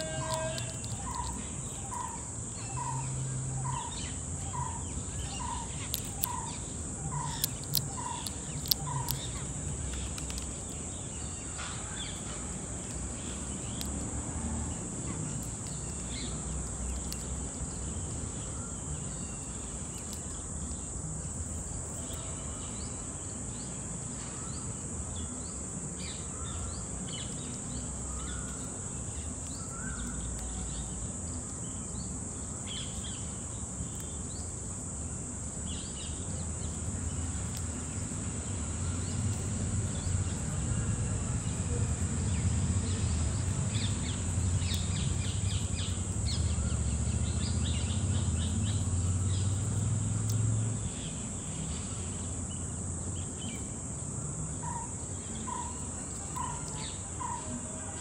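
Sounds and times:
high-pitched insect drone: 0.0 - 23.2.

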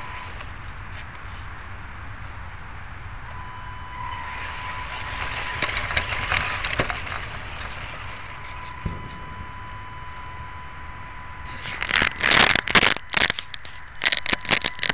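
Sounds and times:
rc car rumble and whine: 0.0 - 14.9
crackles of leaves and twigs: 4.0 - 10.4, 11.4 - 14.9.

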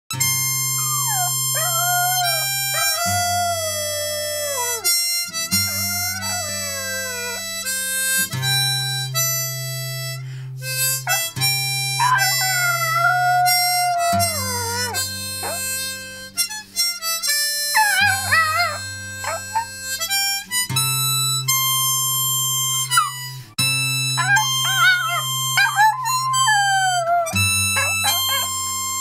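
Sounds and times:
acoustic guitar: 0.1 - 29.0
harmonica playing chords: 0.1 - 29.0
dog howling: 0.8 - 7.6, 12.0 - 15.8, 17.7 - 19.8, 24.2 - 28.6.

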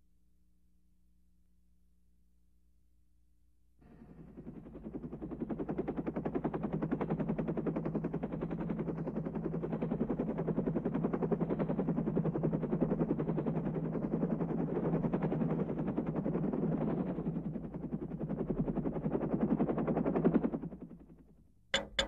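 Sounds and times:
constant low hum: 21.3 - 22.0.

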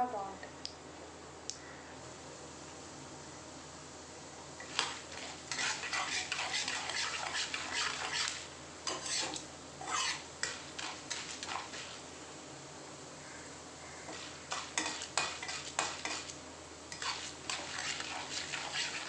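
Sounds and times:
spices frying in oil: 2.1 - 19.0
spoon scraping a pan: 4.6 - 12.2, 14.0 - 19.0.

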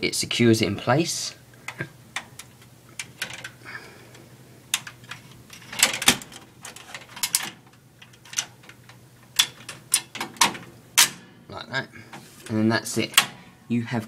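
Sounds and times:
steady low hum: 0.0 - 14.0
metal clicks and clacks: 4.7 - 11.3.

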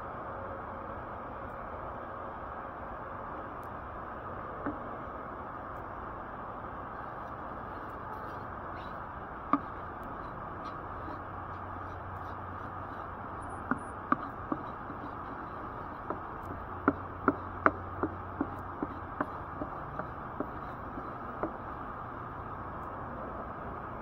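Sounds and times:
low hum: 0.0 - 24.0
steady hiss: 1.0 - 24.0
wooden spatula knocking on pan: 9.5 - 9.8, 13.7 - 21.6.

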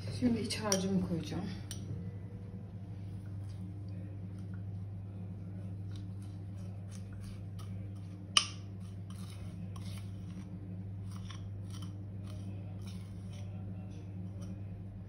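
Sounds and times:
low hum: 0.0 - 15.0
metal spoon scraping bowl: 6.3 - 14.7.

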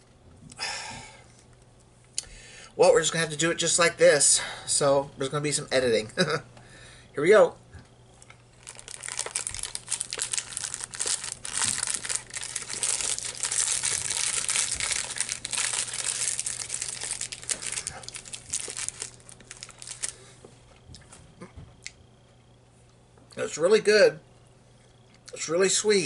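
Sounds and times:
plastic wrapper crinkling: 8.2 - 20.3.

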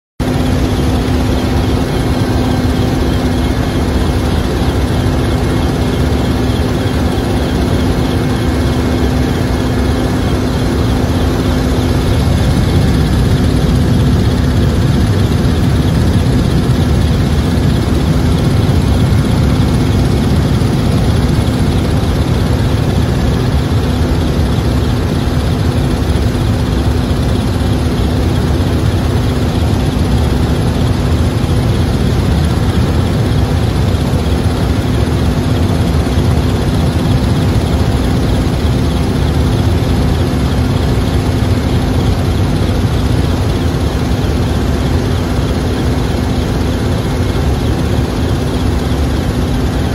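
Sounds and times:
helicopter engine and rotor drone: 0.2 - 49.9.

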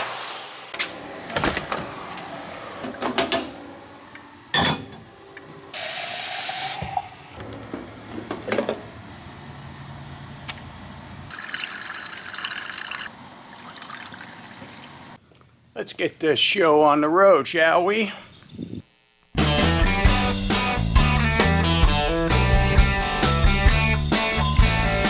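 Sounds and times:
coffee brewer humming: 5.0 - 7.4, 11.3 - 15.2
coffee brewer hissing: 5.7 - 7.3
coffee running into carafe: 11.3 - 14.9.

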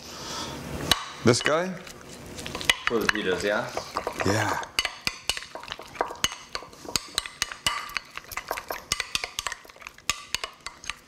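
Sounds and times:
metal utensil clinking on glass bowl: 2.6 - 11.0.

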